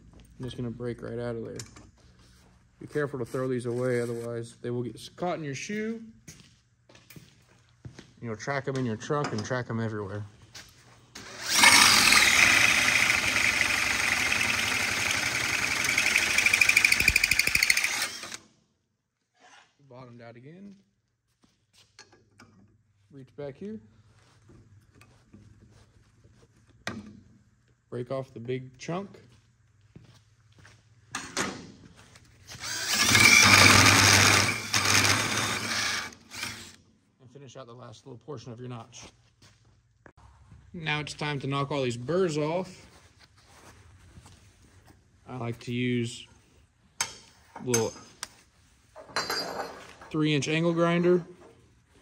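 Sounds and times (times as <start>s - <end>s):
hole saw cutting metal tube: 11.2s - 18.4s, 32.6s - 36.8s.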